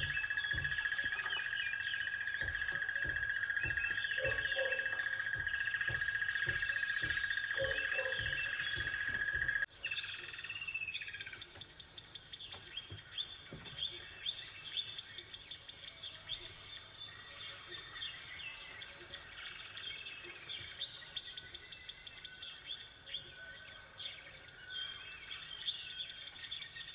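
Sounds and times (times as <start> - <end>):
rapid bird trill: 0.0 - 14.1
songbirds chirping: 0.0 - 26.9.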